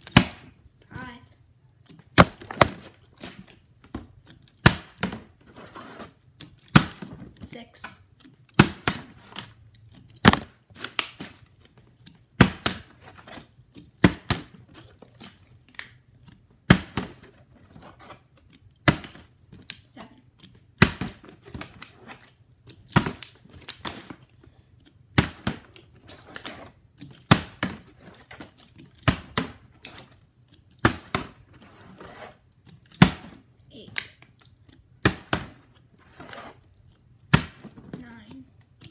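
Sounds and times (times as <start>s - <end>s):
plastic bottle smacking wooden floor: 2.2s - 2.9s, 10.2s - 10.6s.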